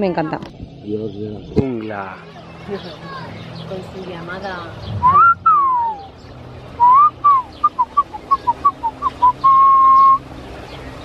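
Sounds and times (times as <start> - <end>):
man whistling bird-like call: 5.0 - 6.2, 6.8 - 10.2.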